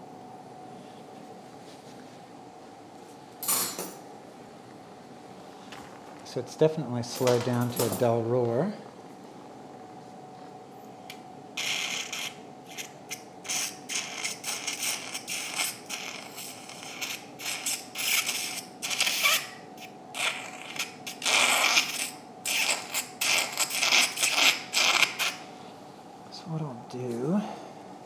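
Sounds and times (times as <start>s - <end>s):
surgical suction sputtering: 11.6s - 19.6s, 20.2s - 25.4s.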